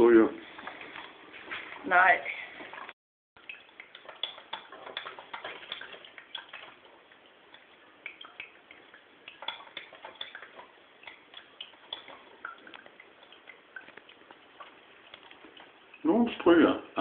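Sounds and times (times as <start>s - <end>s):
coffee machine brewing: 0.1s - 17.0s
faint clicks and ticks: 2.6s - 16.1s.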